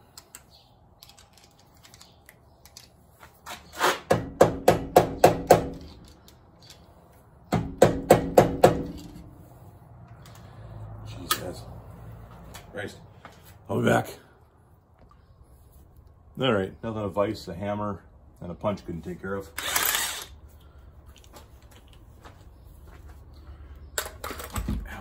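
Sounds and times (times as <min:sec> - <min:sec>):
impact wrench running: 0:19.6 - 0:20.4.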